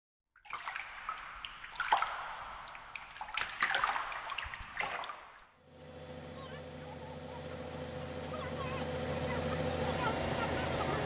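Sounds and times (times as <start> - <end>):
water drips: 0.4 - 5.6
water splashing and trickling: 0.4 - 5.6.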